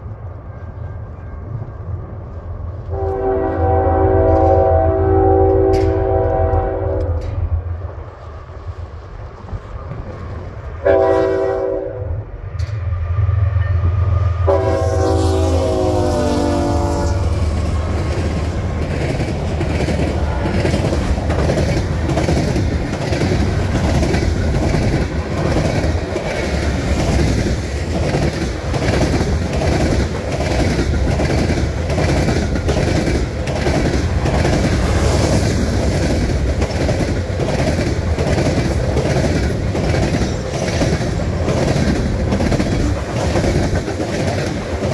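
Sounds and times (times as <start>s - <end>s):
train wheels clickety-clack: 0.0s - 8.2s, 12.5s - 15.3s, 16.1s - 44.9s
train horn: 2.9s - 7.5s, 10.8s - 12.3s, 13.6s - 17.6s
locomotive engine rumble: 12.2s - 44.9s.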